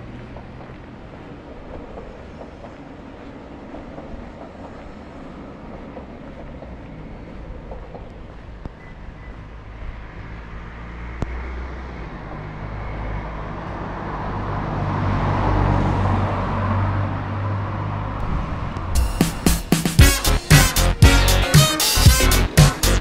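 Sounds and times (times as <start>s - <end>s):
car passing by: 9.2s - 20.0s
low rumble: 18.1s - 21.1s
music with a sharp beat: 18.9s - 23.0s.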